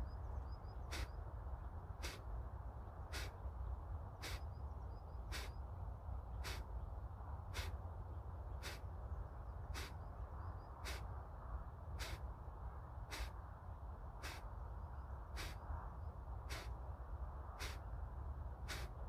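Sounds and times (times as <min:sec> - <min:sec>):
forceful nasal exhalations: 0:03.1 - 0:03.3, 0:06.4 - 0:06.6, 0:10.8 - 0:11.0, 0:12.0 - 0:12.2, 0:13.1 - 0:13.3, 0:14.2 - 0:14.4, 0:15.4 - 0:15.6, 0:16.5 - 0:16.7, 0:17.6 - 0:17.8, 0:18.7 - 0:18.9.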